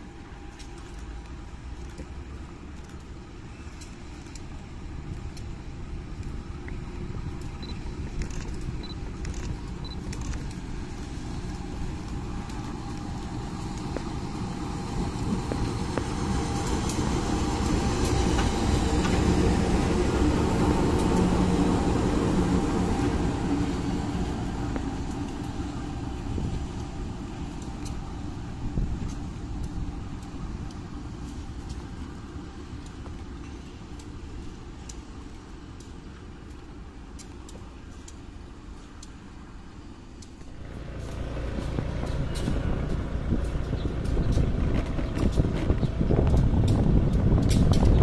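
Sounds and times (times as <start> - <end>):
diesel locomotives passing: 0.0 - 48.0.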